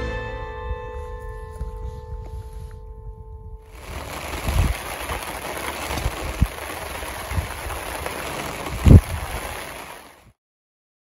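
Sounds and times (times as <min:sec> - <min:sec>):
wind gust thumps: 0:03.2 - 0:10.3
rain hissing: 0:03.7 - 0:10.3.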